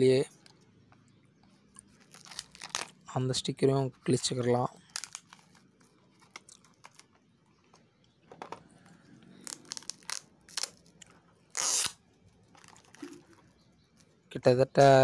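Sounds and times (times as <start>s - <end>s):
paper sticker peeling and tearing: 1.9s - 3.0s, 9.4s - 10.9s, 11.5s - 12.0s.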